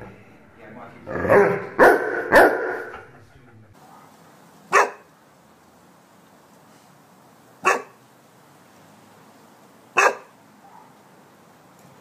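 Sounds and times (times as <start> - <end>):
dog barking: 1.3 - 3.1, 4.7 - 5.1, 7.6 - 8.0, 10.0 - 11.1.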